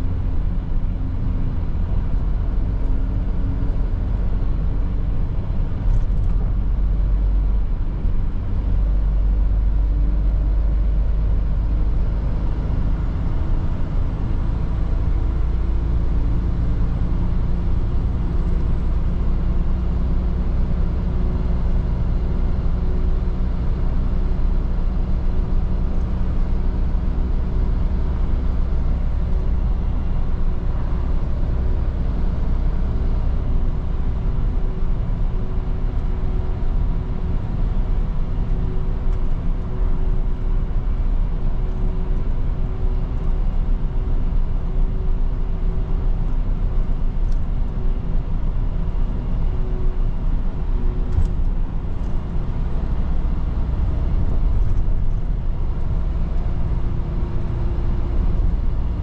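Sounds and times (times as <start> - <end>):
diesel truck engine drone: 0.0 - 59.0.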